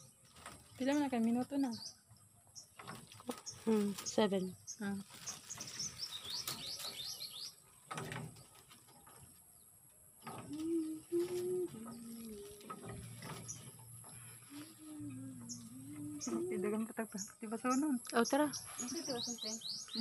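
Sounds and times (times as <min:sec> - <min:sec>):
low held notes: 0:10.4 - 0:20.0.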